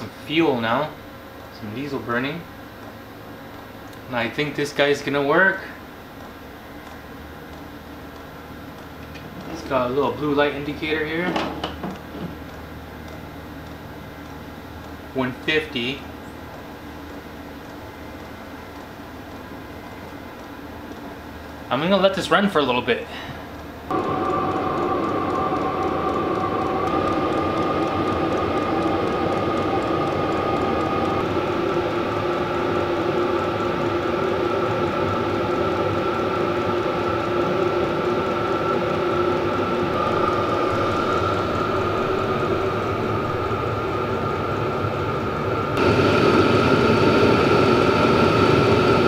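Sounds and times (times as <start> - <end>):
heater fan whine and hum: 0.0 - 49.0
steady high tone: 23.9 - 49.0.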